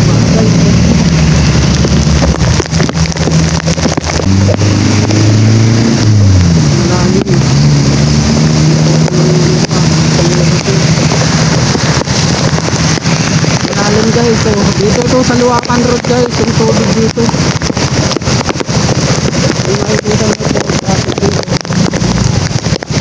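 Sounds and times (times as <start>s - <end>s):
heavy rain and water rushing: 0.0s - 23.0s
vehicle engines running: 0.0s - 23.0s
wind on microphone: 0.0s - 23.0s.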